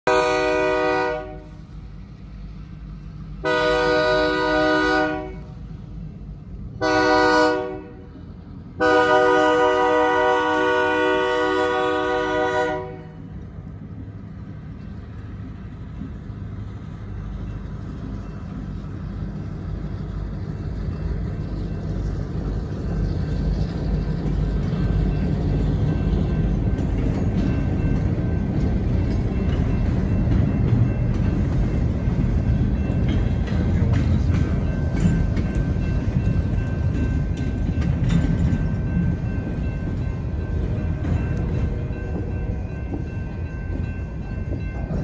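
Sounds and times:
locomotive horn: 0.0 - 1.6, 3.4 - 5.6, 6.8 - 8.2, 8.8 - 13.3
freight train cars rumbling: 0.0 - 45.0.

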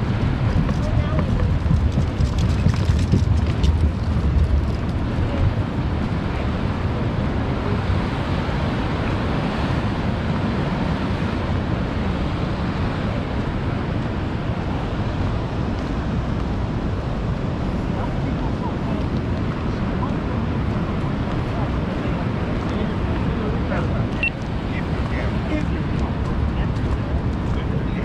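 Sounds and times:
ocean surf rushing: 0.0 - 28.0
wind rumbling on microphone: 0.0 - 28.0.

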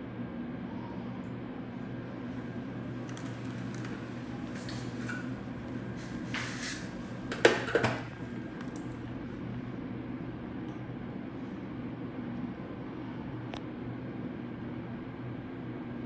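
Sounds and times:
low hum of dental equipment: 0.0 - 16.0
short hisses of spray: 6.0 - 7.0.

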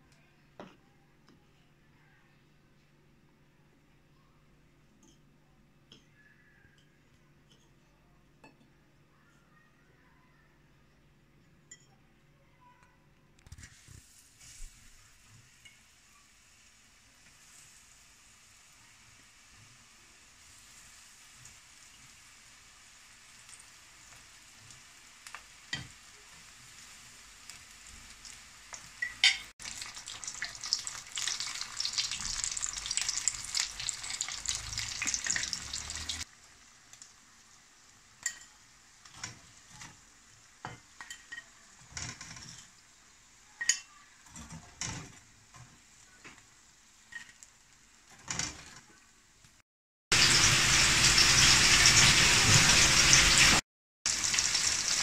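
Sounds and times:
food deep-frying in hot oil: 13.5 - 55.0
loud steady sizzle: 13.5 - 55.0.

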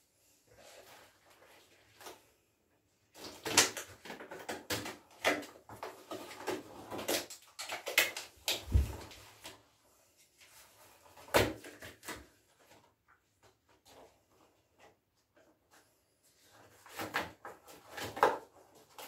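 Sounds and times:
rubber gloves rustling and snapping: 3.2 - 9.6.

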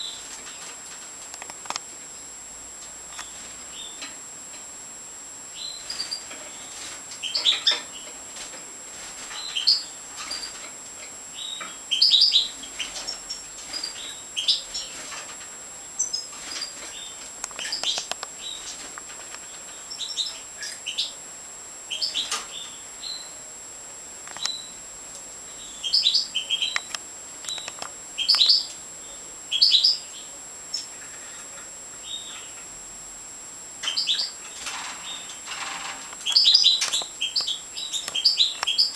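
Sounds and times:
finches chirping: 3.2 - 4.1, 5.5 - 8.2, 9.0 - 15.3, 15.9 - 21.2, 21.8 - 23.4, 24.3 - 24.8, 25.5 - 32.7, 33.8 - 38.9.

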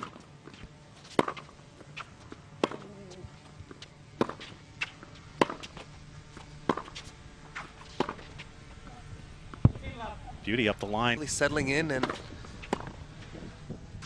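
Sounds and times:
racket striking tennis ball: 0.0 - 8.5, 12.0 - 13.8
tennis ball bouncing: 0.0 - 8.5, 12.0 - 13.8.

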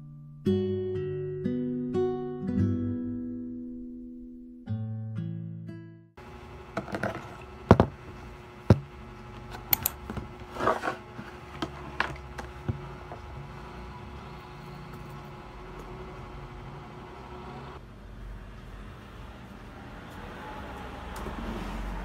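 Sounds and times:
objects knocking on wooden desk: 6.8 - 8.0.

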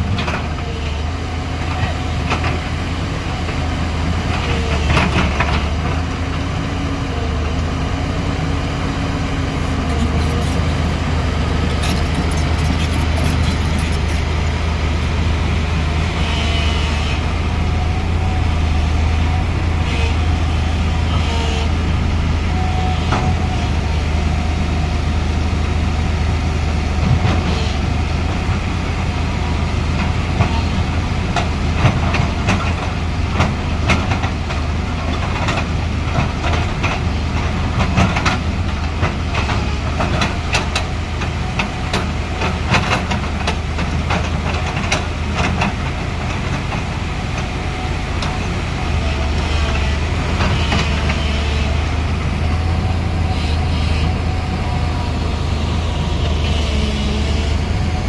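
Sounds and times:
excavator diesel engine running: 0.0 - 58.0
metallic clanking of steel tracks: 9.4 - 15.6.

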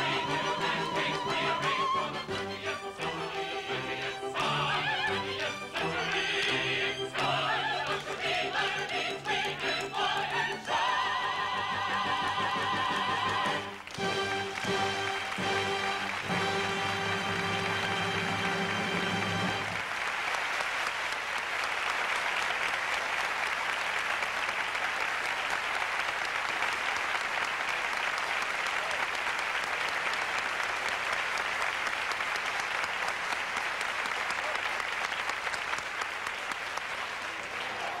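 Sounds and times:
audience applauding: 0.0 - 38.0
orchestra held chord: 14.0 - 19.8.

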